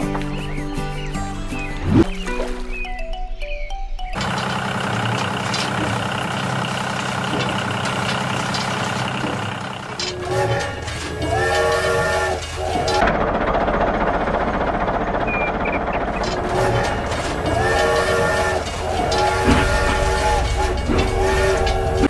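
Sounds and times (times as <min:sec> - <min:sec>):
toy train whistle: 0:10.0 - 0:13.0, 0:16.2 - 0:22.0.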